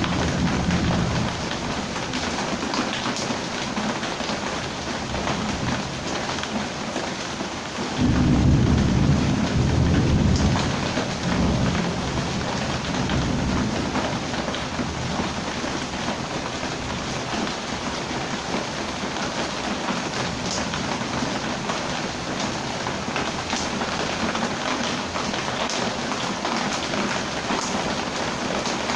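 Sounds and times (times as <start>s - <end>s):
thunder rumble: 0.0s - 2.4s, 8.0s - 17.9s
heavy rain: 0.0s - 28.9s.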